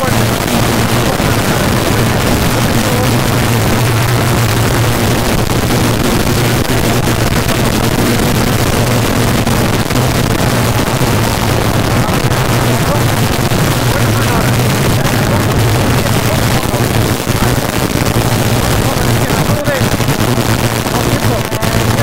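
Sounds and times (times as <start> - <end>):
rally car engine at high revs: 0.0 - 22.0.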